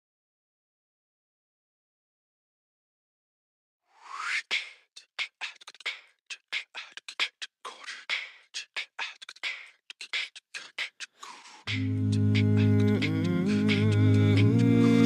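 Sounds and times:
beatboxed vocal percussion: 4.1 - 15.0.

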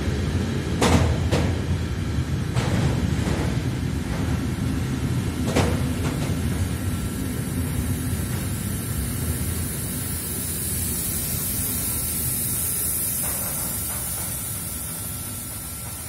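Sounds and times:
train wheels rumbling on rails: 0.0 - 16.0
bright hiss: 5.6 - 16.0.

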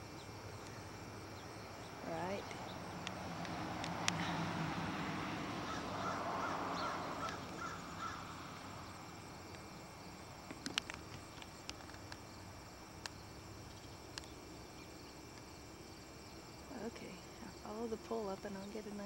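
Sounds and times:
insects trilling: 0.0 - 19.0
sharp clicks: 10.5 - 12.2.

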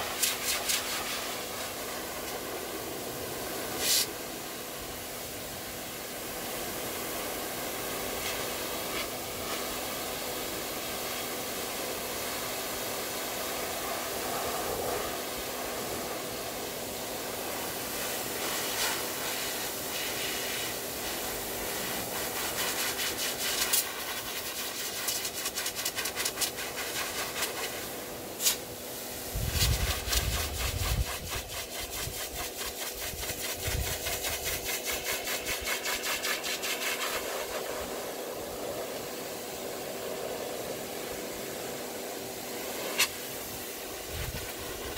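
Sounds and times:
dog grooming dryer blowing: 0.0 - 44.9.

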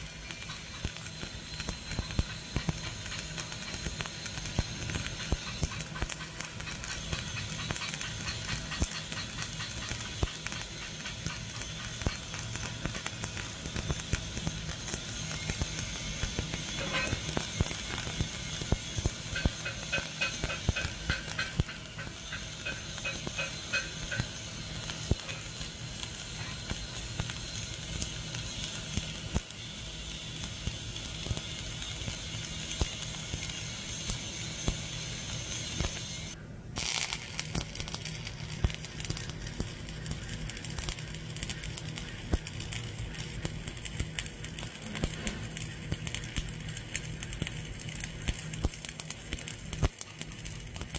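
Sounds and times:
welding arc crackling: 0.0 - 50.9.

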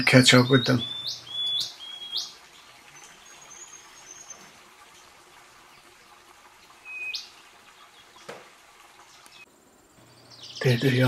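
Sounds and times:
faint high twittering: 0.0 - 4.5, 9.2 - 11.0
small bird upward sweeping calls: 0.6 - 2.4, 6.8 - 7.3.

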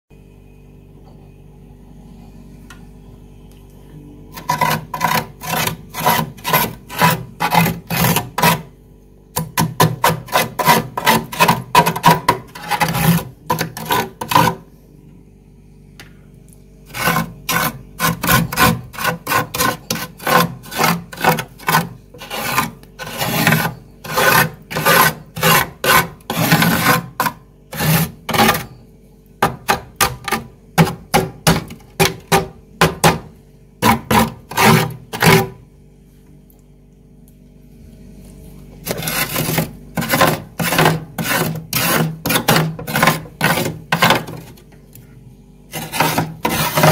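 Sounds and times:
steady low hum: 0.1 - 46.9
hand scraping frost in freezer: 4.3 - 8.7, 9.4 - 14.7, 16.8 - 28.8, 29.4 - 35.6, 38.8 - 44.6, 45.7 - 46.9.

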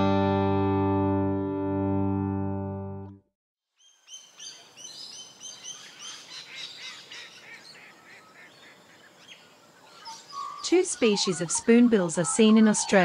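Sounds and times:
music: 0.0 - 3.3
flock of birds calling: 5.4 - 13.0.

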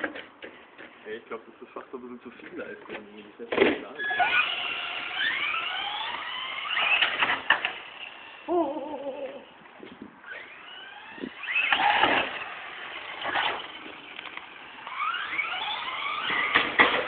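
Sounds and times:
electric motor whining: 4.0 - 9.6, 10.2 - 17.0.

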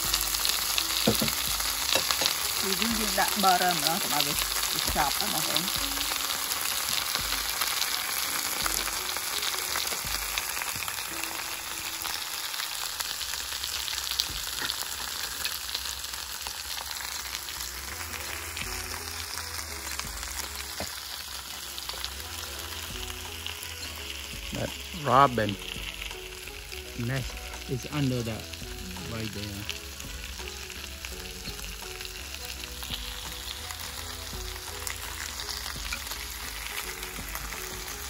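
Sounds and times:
vegetables sizzling in grill pan: 0.0 - 38.0.

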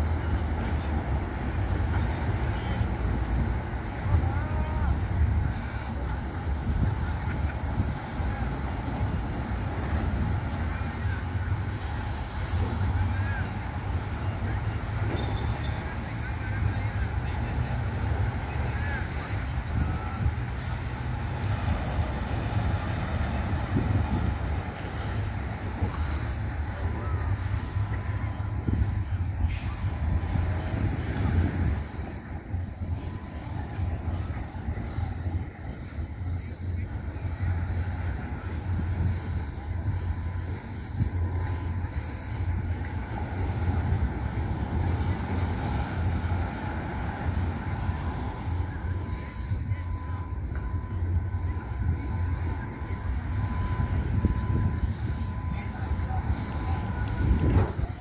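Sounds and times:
beach ambience hiss: 0.0 - 58.0
wind buffeting microphone: 0.0 - 58.0.

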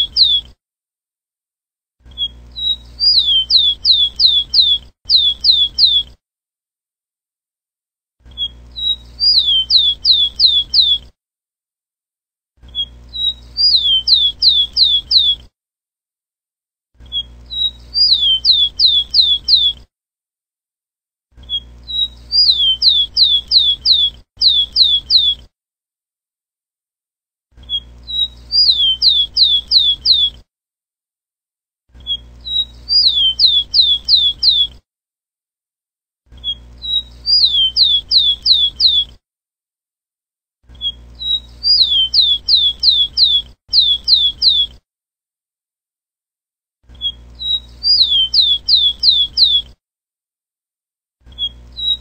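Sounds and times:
sparrow singing whistles: 0.0 - 0.5, 2.1 - 6.1, 8.3 - 11.1, 12.7 - 15.5, 17.1 - 19.8, 21.4 - 25.5, 27.6 - 30.4, 32.0 - 34.8, 36.4 - 39.2, 40.8 - 44.8, 47.0 - 49.8, 51.3 - 52.0.

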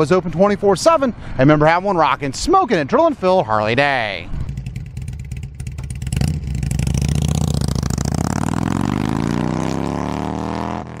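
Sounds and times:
motorcycle engine revving: 4.4 - 11.0.

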